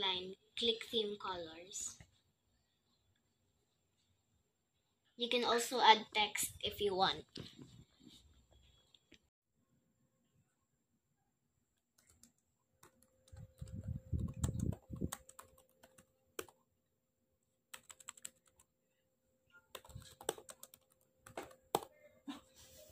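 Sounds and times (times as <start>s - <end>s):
laptop keyboard typing: 11.8s - 16.8s, 17.7s - 18.8s, 19.6s - 22.0s.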